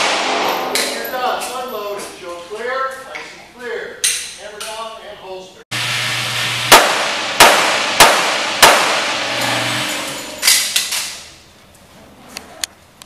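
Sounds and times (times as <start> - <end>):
pistol shots echoing indoors: 0.0 - 1.1, 6.7 - 9.4.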